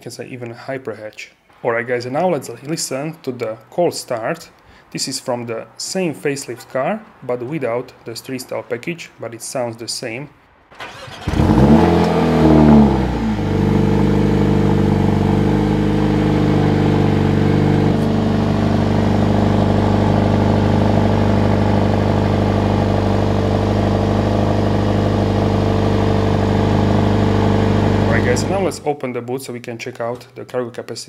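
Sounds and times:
car engine cold start and idle: 0:10.7 - 0:28.8.

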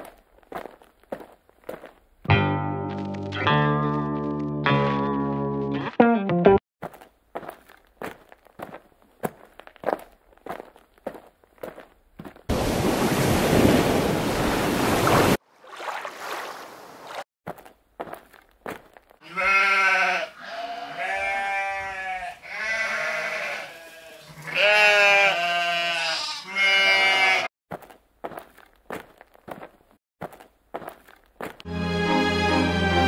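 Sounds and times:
farm animal bleating: 0:19.2 - 0:27.5.

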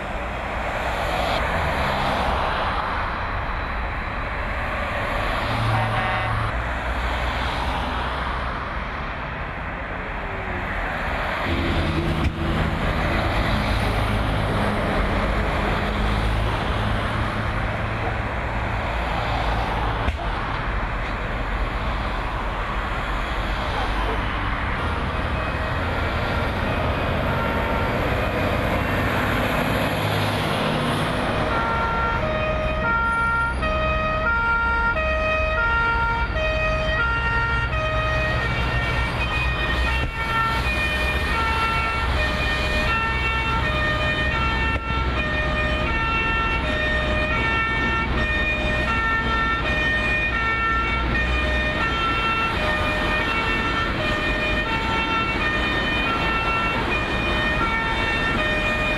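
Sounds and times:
two-tone emergency siren: 0:00.0 - 0:06.6, 0:22.6 - 0:58.9.

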